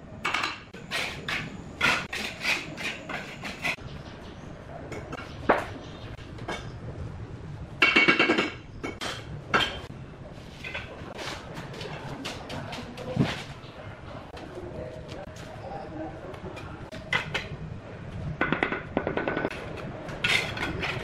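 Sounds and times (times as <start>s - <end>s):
trowel tapping and scraping bricks: 0.2s - 3.8s.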